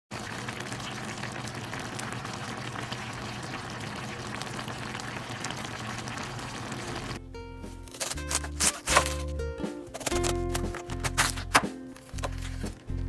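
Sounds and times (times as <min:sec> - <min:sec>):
broth boiling and bubbling: 0:00.1 - 0:07.2.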